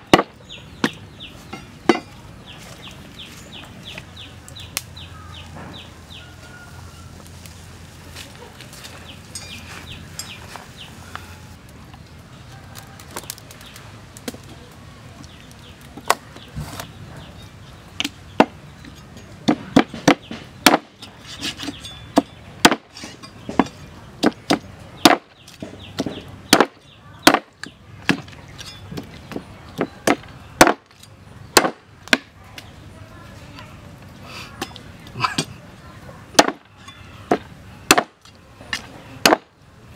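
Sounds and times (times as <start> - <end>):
cleaver chopping on wooden block: 23.5 - 27.5, 31.6 - 32.3, 36.4 - 36.6, 37.3 - 38.2, 39.2 - 39.5.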